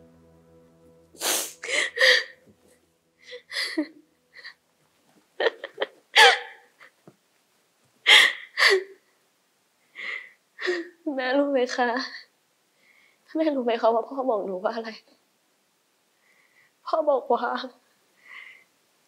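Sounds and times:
woman sobbing: 1.6 - 2.4, 3.2 - 4.6, 5.4 - 6.9, 8.1 - 9.0.

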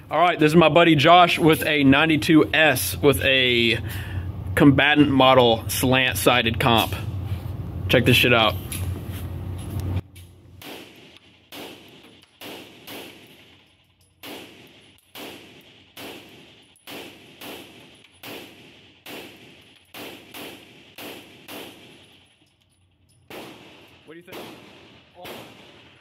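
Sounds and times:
pistol shots echoing indoors: 10.6 - 22.6, 23.3 - 26.0.

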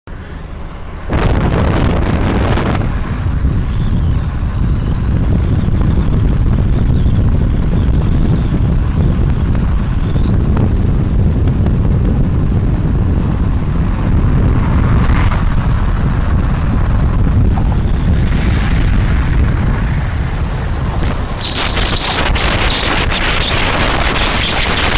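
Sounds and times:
vehicle running noise: 0.1 - 24.9
wind buffeting microphone: 0.5 - 24.9.

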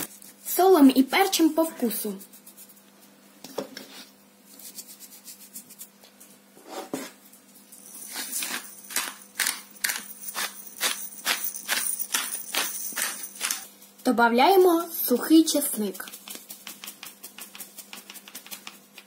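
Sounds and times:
pepper grinder clicking and rattling: 8.0 - 13.7, 15.8 - 19.0.

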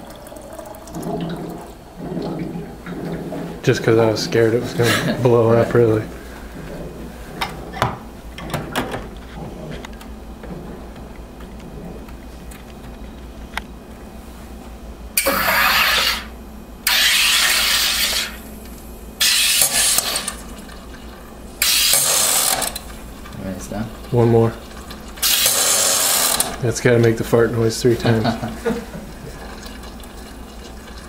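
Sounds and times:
soda maker hissing bursts: 15.2 - 26.8.

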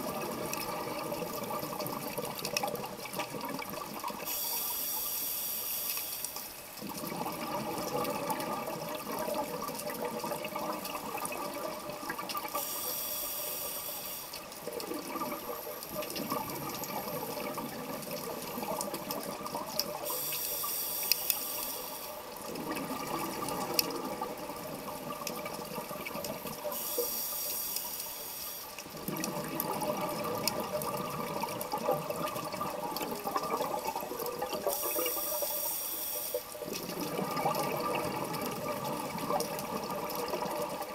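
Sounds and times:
exhaled air bubbling: 0.0 - 5.2, 6.6 - 40.9
regulator inhalation hiss: 4.2 - 6.6, 12.6 - 14.5, 20.0 - 22.2, 26.6 - 28.8, 34.7 - 36.6.

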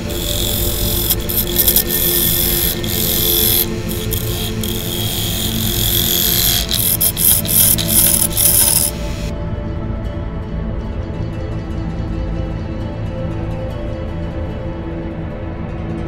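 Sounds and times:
lathe gouge cutting wood: 0.0 - 9.3.

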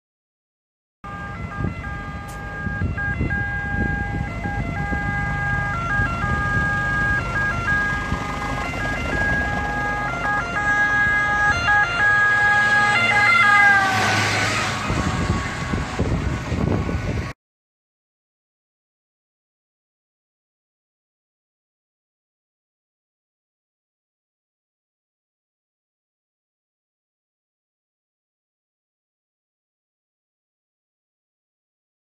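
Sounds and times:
ambulance two-tone siren: 1.0 - 17.3
low rumble of engines and road: 1.0 - 17.4
vehicle rushing past: 1.1 - 17.3.

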